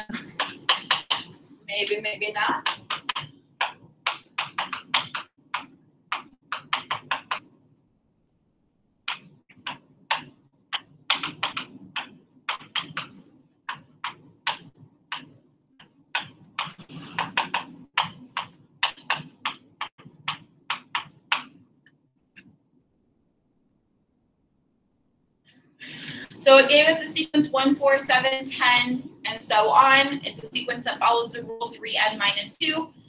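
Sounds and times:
marker tapping on a board: 0.4s - 1.4s, 2.6s - 7.5s, 9.1s - 21.6s.

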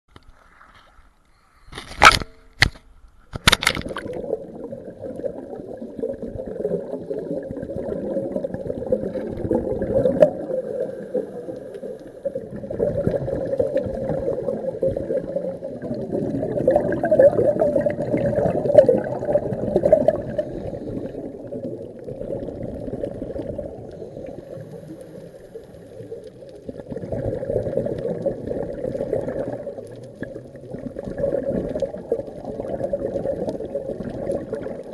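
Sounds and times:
sharp knocks or splashes: 1.8s - 4.2s
underwater rush with bubbling: 3.3s - 34.9s.

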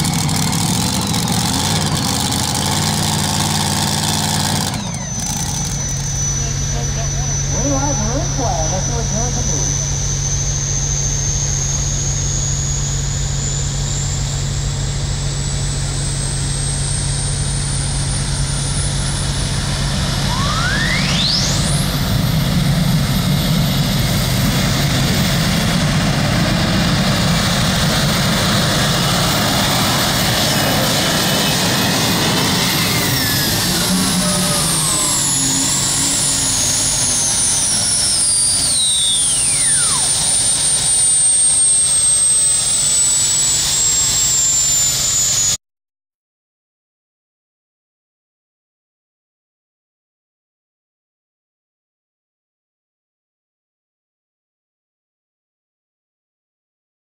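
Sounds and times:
tractor engine running: 0.0s - 41.3s
high engine whine: 0.0s - 45.6s.

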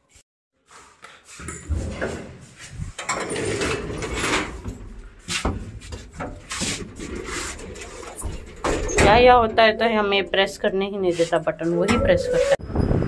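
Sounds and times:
lift rumbling and clattering: 1.7s - 11.0s.

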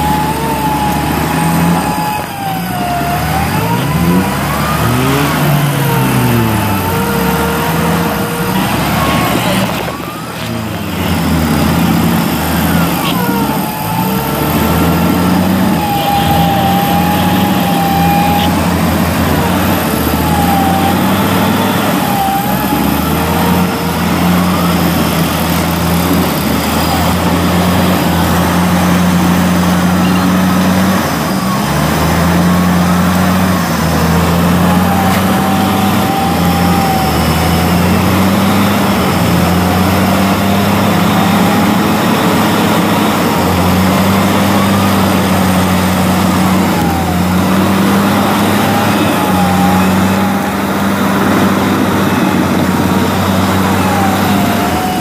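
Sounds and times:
wavering whine: 0.0s - 27.5s
engine running under load: 0.0s - 55.0s.

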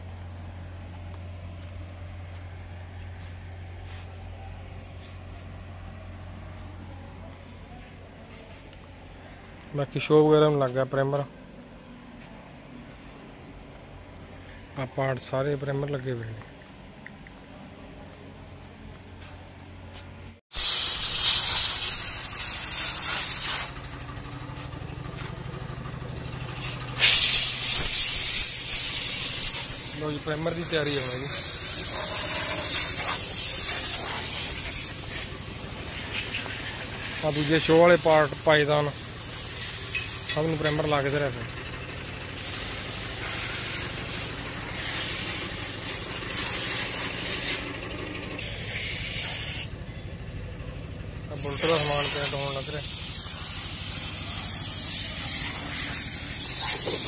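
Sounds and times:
spray gun hissing: 20.5s - 23.8s, 26.6s - 40.3s, 42.4s - 47.7s, 48.4s - 49.7s, 51.4s - 57.0s
low machine rumble: 23.7s - 30.4s.

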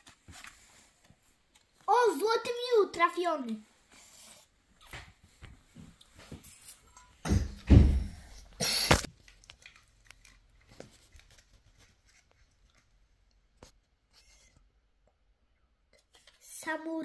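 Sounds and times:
heavy bump: 7.3s - 8.3s
papery rustle: 9.1s - 13.0s.

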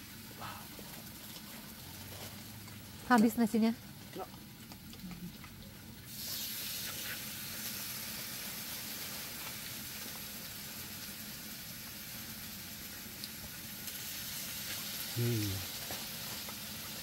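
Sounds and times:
food sizzling in a hot pan: 5.3s - 17.0s.

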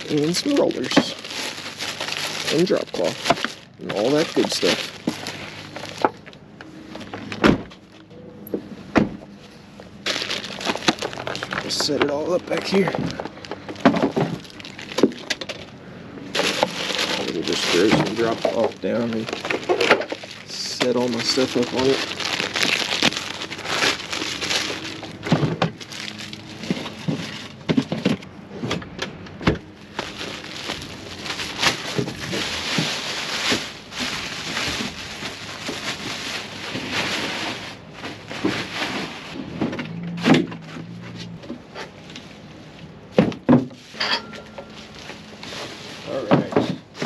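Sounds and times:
plastic sheet crinkling: 0.0s - 6.4s, 10.0s - 15.7s, 16.3s - 27.6s, 29.7s - 39.4s.

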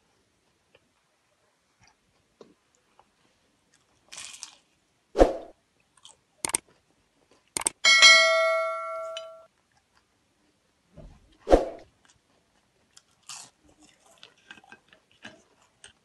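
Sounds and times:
notification bell ringing: 7.9s - 9.4s.

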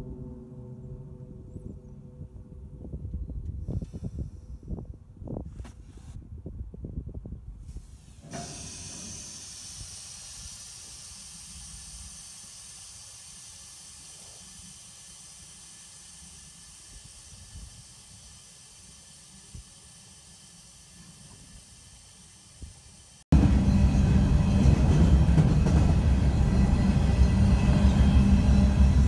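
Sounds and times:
low rumble: 0.0s - 5.4s
compressed air hissing: 3.6s - 4.8s, 7.6s - 23.2s.

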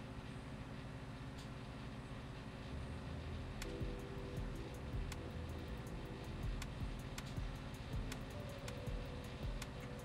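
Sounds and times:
low steady rumble: 0.0s - 10.0s
quiet background music: 0.0s - 10.0s
sharp ticking beat: 3.6s - 10.0s.

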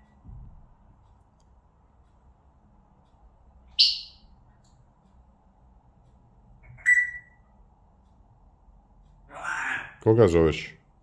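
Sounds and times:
parrot calling: 3.8s - 4.3s, 6.6s - 7.4s, 9.3s - 10.0s.

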